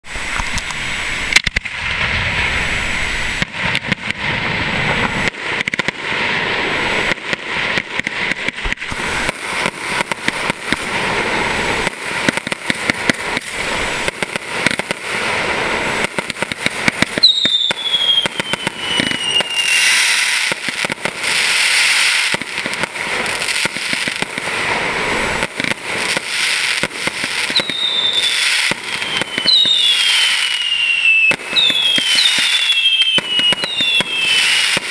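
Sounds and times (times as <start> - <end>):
falling firework whistles: 0.0 - 34.9
firework bangs and crackle: 0.0 - 34.9.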